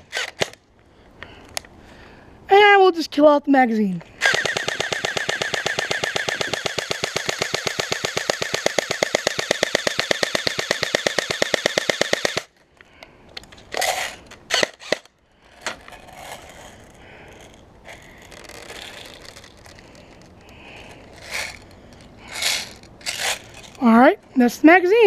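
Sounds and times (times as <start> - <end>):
airsoft rifle firing full auto: 0.0 - 0.6, 4.2 - 12.5
handling clicks and rustles: 11.7 - 24.0.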